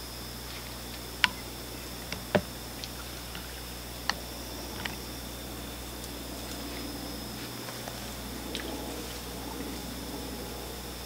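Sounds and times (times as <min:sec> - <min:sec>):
steady high hiss: 0:00.0 - 0:11.0.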